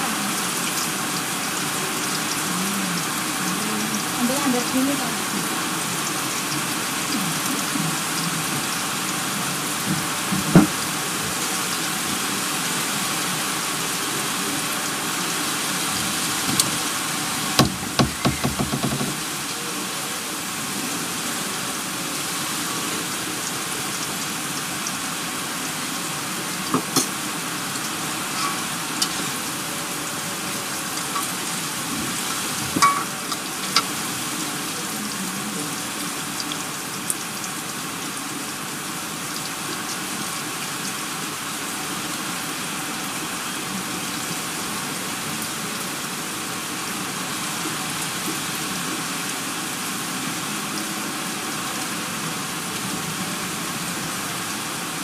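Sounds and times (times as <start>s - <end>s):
heavy rain pouring: 0.0s - 55.0s
knocks and clatters: 17.6s - 19.2s.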